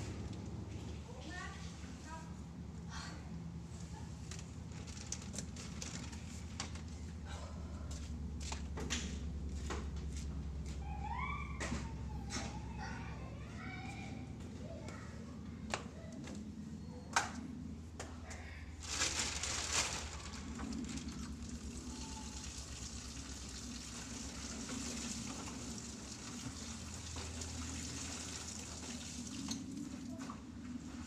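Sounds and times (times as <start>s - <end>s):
low steady hum: 0.0s - 31.0s
water tap running: 21.0s - 29.7s.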